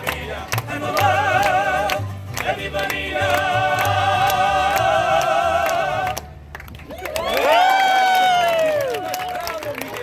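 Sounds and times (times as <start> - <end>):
mariachi band playing and singing: 0.0 - 7.0.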